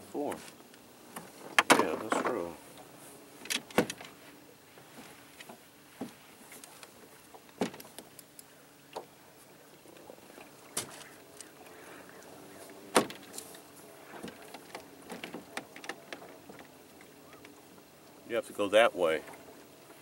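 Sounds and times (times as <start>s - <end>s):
water lapping: 0.0s - 20.0s
paddle knocking on boat: 1.1s - 2.5s.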